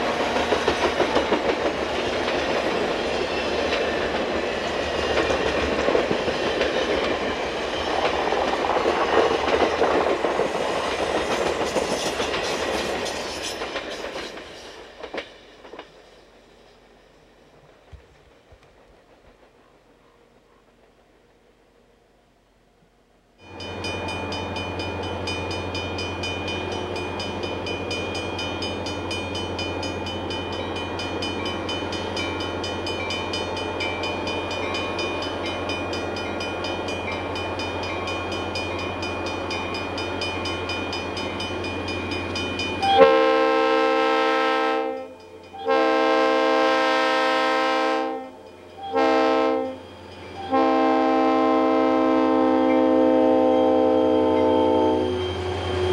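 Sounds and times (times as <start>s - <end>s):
locomotive air horn blasts: 42.8s - 55.4s
locomotive engine drone: 49.6s - 55.9s.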